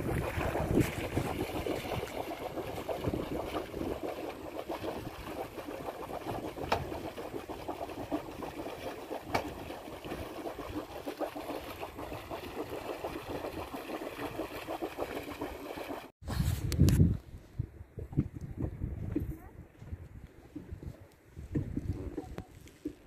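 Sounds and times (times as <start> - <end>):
water splashing against boat hull: 0.0 - 16.1.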